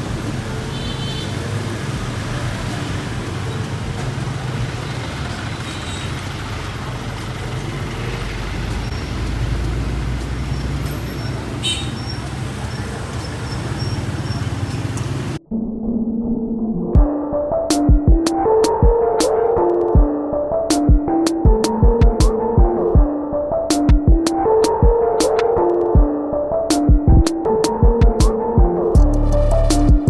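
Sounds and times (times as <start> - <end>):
street traffic engines rumbling: 0.0 - 15.4.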